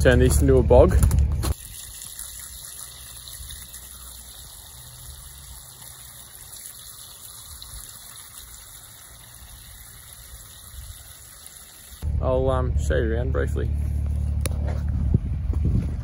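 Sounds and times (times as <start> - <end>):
hose water splashing on mulch: 1.5 - 12.0.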